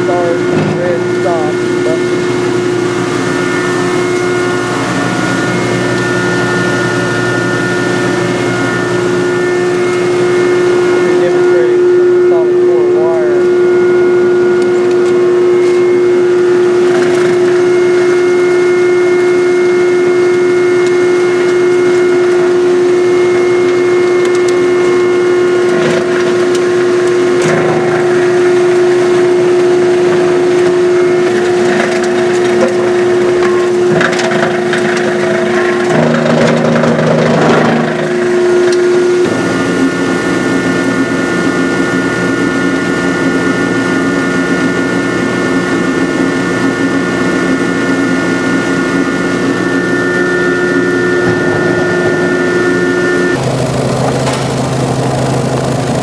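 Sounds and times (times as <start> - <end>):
machinery hum: 0.0 - 56.0
wire crunching in granulator: 25.5 - 40.0.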